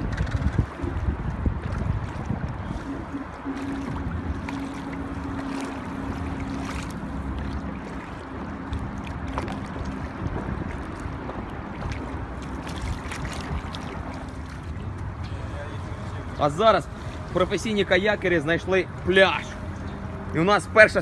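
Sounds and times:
wind on microphone: 0.0 - 16.3
low steady hum: 0.0 - 20.4
rushing water: 0.0 - 21.0.

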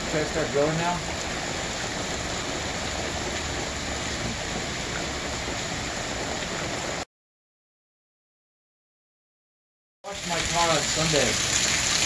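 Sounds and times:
heavy rain on water: 0.0 - 7.1, 10.1 - 12.0.

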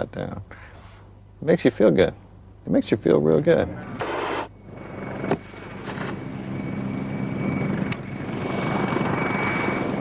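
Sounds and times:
helicopter rotor and turbine: 4.0 - 10.0.

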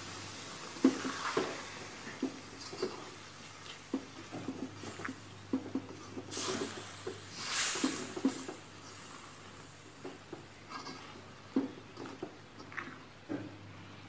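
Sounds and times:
spatula scraping wet filling in wok: 0.8 - 9.3.

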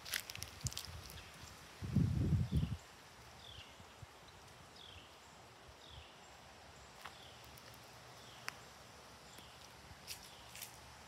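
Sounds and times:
footsteps on concrete: 7.0 - 8.6, 9.4 - 10.8.

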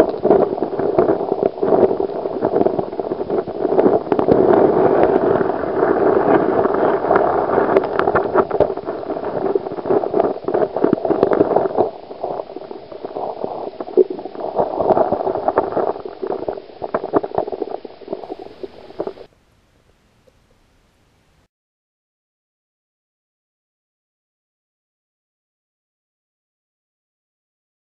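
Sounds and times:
muffled underwater stream water: 0.0 - 21.5.

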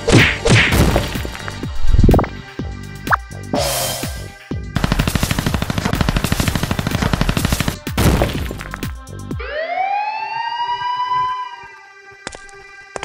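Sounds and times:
machine-gun fire: 4.8 - 8.9
siren-like wail: 9.3 - 12.0.

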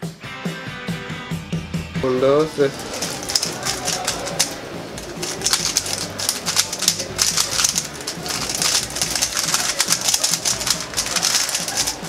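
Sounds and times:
plastic cube clicks and clacks: 2.9 - 12.0.

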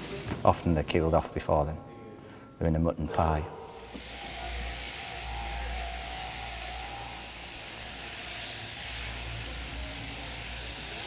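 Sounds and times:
electric shears buzzing: 3.7 - 11.0.

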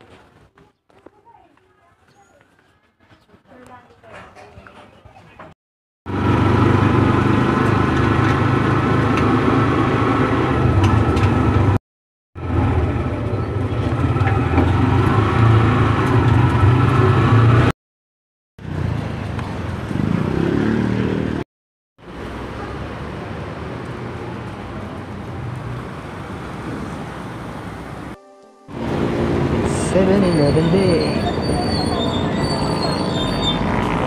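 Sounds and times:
vehicle engine running: 6.1 - 11.8, 12.4 - 17.7, 28.7 - 34.0.

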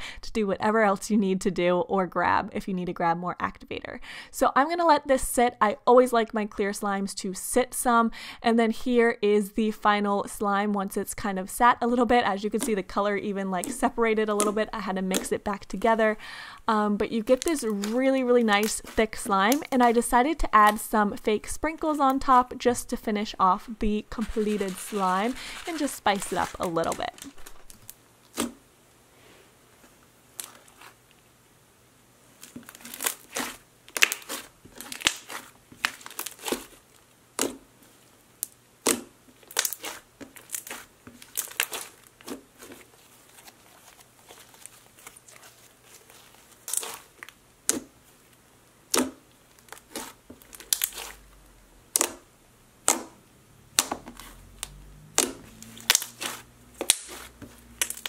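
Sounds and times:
slime clicking and crackling: 13.6 - 15.4, 17.2 - 19.9, 32.4 - 36.8, 38.4 - 42.8, 46.1 - 47.9, 48.9 - 51.2, 51.9 - 52.2, 53.7 - 58.0.

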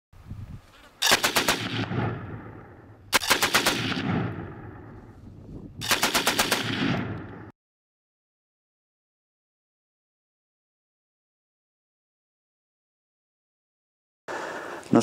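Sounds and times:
machine gun bursts with echo: 1.0 - 4.6, 5.8 - 7.5.

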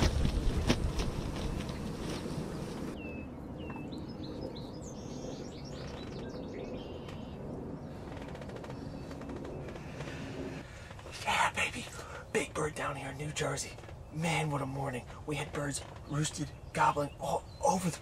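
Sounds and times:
songbirds chirping and singing: 2.8 - 18.0
faint steady rustle: 7.9 - 16.6.

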